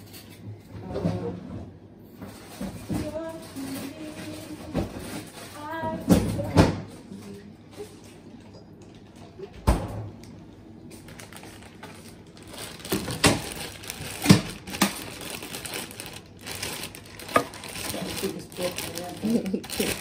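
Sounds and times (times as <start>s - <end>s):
plastic bag crinkling: 11.0s - 20.0s.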